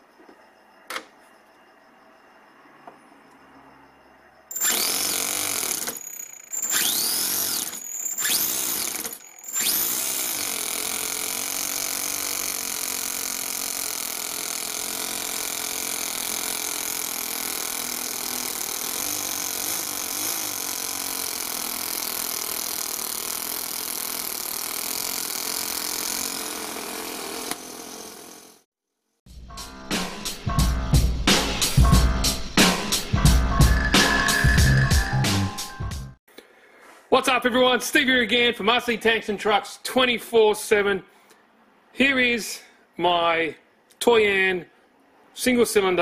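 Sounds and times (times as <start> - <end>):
model engine running: 4.5 - 28.6.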